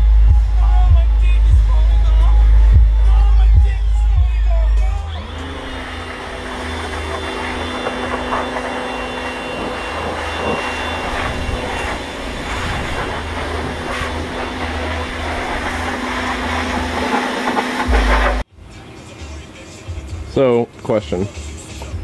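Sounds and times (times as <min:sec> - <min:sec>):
pressure washer motor hum: 0:05.0 - 0:18.5
water jet hissing: 0:05.2 - 0:18.4.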